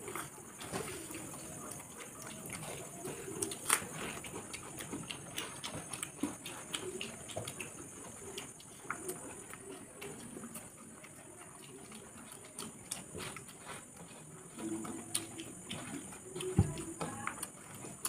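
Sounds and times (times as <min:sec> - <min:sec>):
dove cooing: 0:00.0 - 0:04.5, 0:06.4 - 0:12.6, 0:14.5 - 0:17.5
people chewing food: 0:00.0 - 0:18.0.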